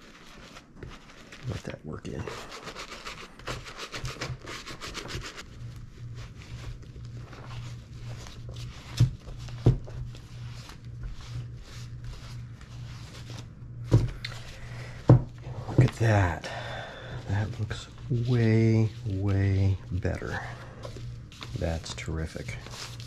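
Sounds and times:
cloth rubbing leather: 0:00.0 - 0:13.6, 0:17.0 - 0:23.0
brush scrubbing leather boot: 0:02.2 - 0:13.5, 0:17.2 - 0:23.0.

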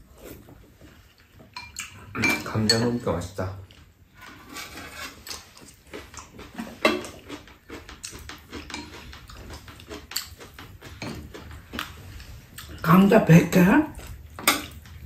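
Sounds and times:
chewing: 0:00.2 - 0:02.2, 0:03.6 - 0:12.9, 0:13.9 - 0:15.0
slurping soup: 0:04.2 - 0:12.8
utensils clicking on bowls: 0:04.6 - 0:13.1.

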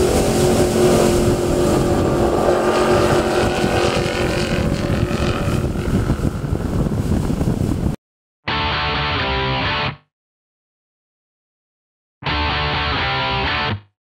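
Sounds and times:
powerboat engines running: 0:00.0 - 0:08.0
wind buffeting microphone: 0:00.0 - 0:08.0.

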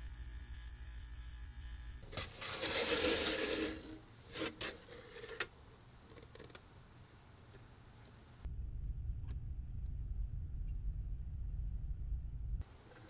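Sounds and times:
bench grinder motor hum: 0:02.4 - 0:04.5.

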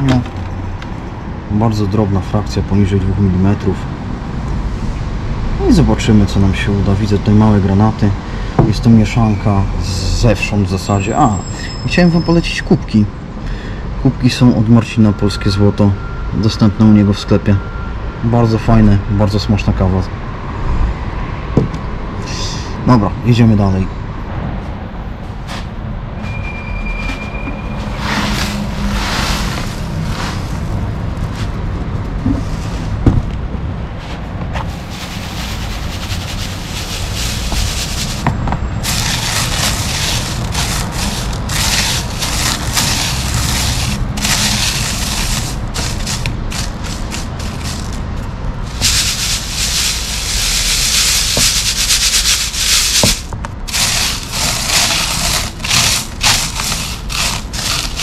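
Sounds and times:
gravel rasping through a sieve: 0:27.7 - 0:31.6, 0:34.6 - 0:58.0.

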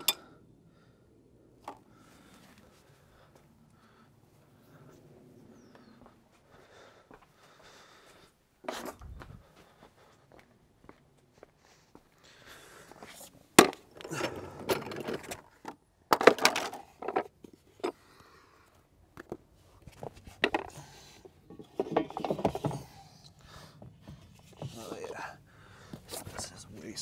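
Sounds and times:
wooden dolly knocking and rolling: 0:13.6 - 0:18.0, 0:20.1 - 0:23.2.

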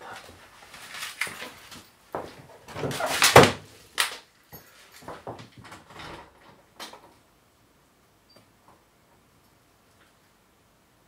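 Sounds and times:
knocks and clatters: 0:01.2 - 0:07.2.

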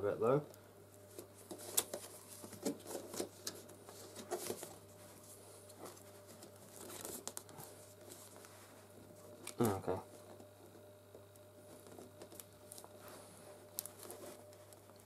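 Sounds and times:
plastic hose crinkling and creaking: 0:05.6 - 0:15.0.

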